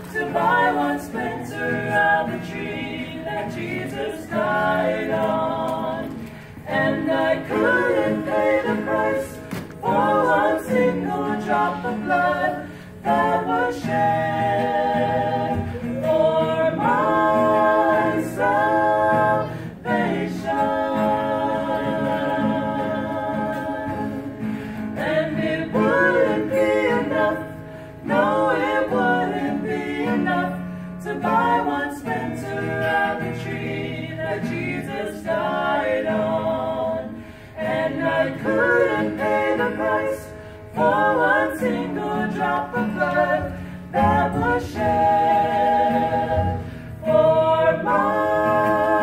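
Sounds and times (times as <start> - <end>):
acoustic guitar: 0.0 - 49.0
vocal trio singing gospel harmony: 0.0 - 49.0.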